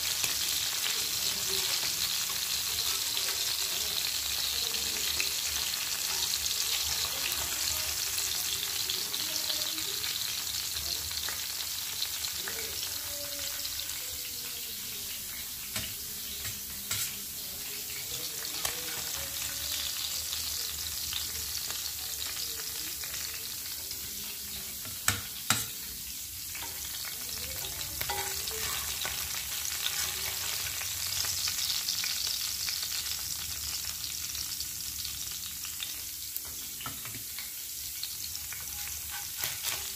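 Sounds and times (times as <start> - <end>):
fish sizzling in oil: 0.0 - 39.9
spatula scraping pan: 27.6 - 30.5, 38.3 - 39.9.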